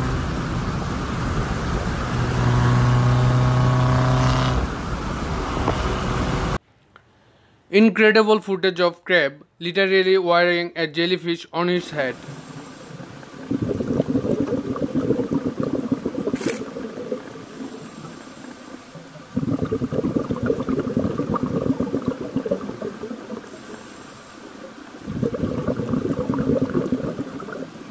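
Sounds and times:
underwater air bubbles: 11.9 - 27.9.

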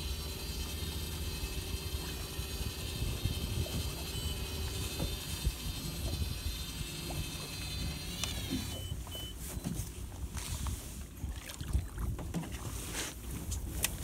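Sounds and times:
electric reel whining: 0.0 - 9.6
short beeps: 8.7 - 9.8
water splashing: 10.3 - 13.0.

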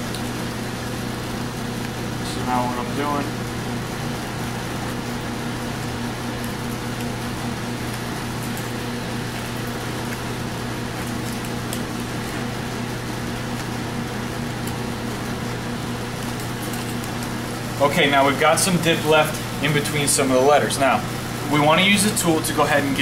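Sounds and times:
machine hum with hiss: 0.0 - 23.0.

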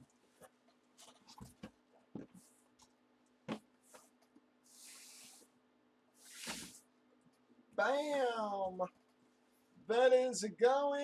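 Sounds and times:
cardboard sliding against cardboard: 4.7 - 5.5, 6.2 - 6.8.

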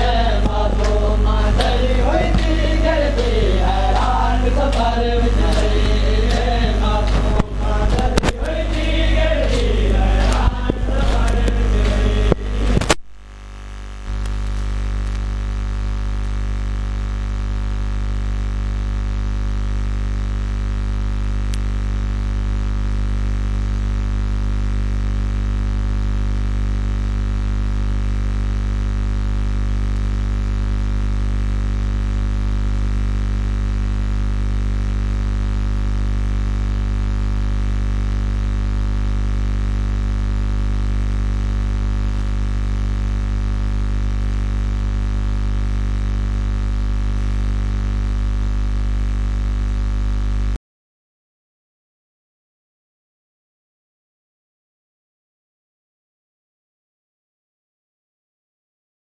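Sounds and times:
person singing: 0.0 - 12.8
loud electrical hum: 0.0 - 50.6.

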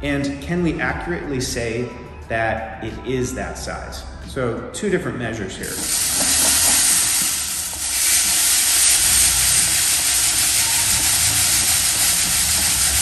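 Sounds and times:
coffee beans rattling in sieves: 5.6 - 13.0.

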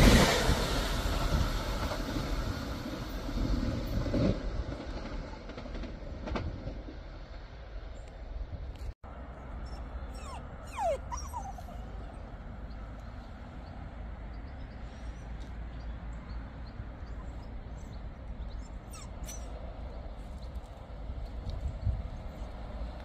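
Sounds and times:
dog whining: 9.6 - 12.2, 18.6 - 19.5.

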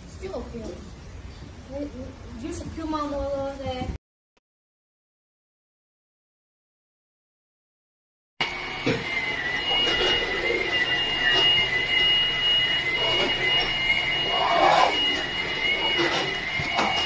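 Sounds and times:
high-pitched whine: 8.4 - 17.0.

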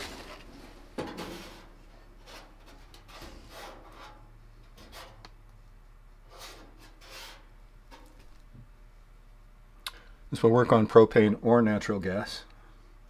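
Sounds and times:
hand rubbing on metal panel: 1.3 - 4.2, 6.3 - 7.5.

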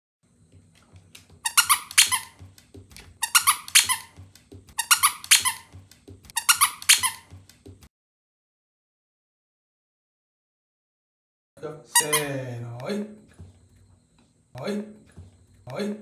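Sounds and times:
dog toy squeaking: 1.4 - 2.4, 3.2 - 4.2, 4.8 - 7.4, 11.9 - 12.3.

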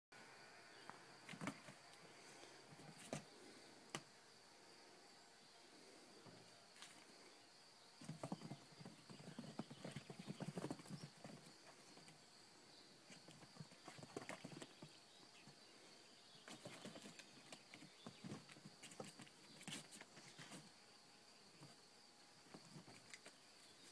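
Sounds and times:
kittens' paws pattering and scuffling: 1.3 - 2.0, 2.7 - 3.5, 8.0 - 12.2, 13.0 - 15.6, 16.4 - 20.8, 21.5 - 23.9.

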